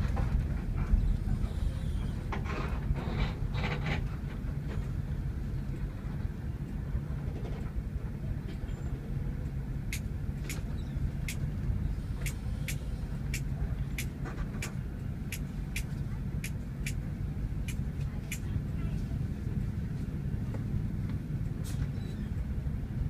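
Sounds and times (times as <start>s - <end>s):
bus diesel engine rumbling: 0.0s - 23.0s
sharp regular ticking: 12.2s - 17.0s.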